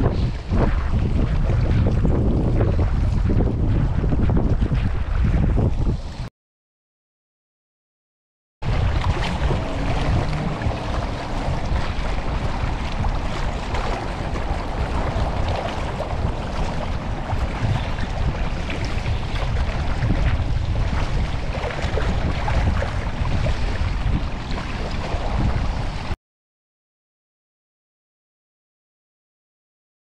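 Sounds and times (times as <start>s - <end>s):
open water wash: 0.0s - 6.3s, 8.6s - 26.2s
wind buffeting microphone: 0.0s - 6.3s, 8.6s - 26.2s.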